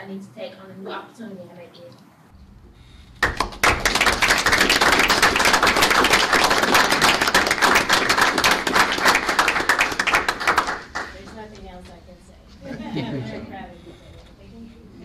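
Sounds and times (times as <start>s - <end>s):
small group clapping: 3.1s - 11.6s.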